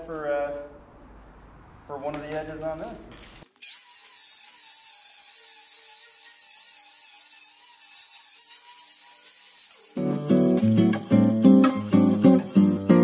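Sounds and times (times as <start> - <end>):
angle grinder grinding steel: 3.6 - 13.0.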